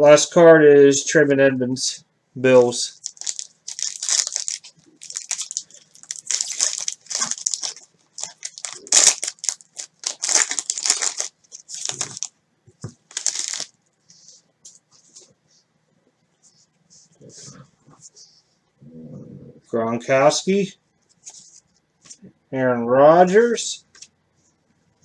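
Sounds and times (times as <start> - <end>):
foil wrapper crinkling and tearing: 3.0 - 12.3, 13.1 - 13.7.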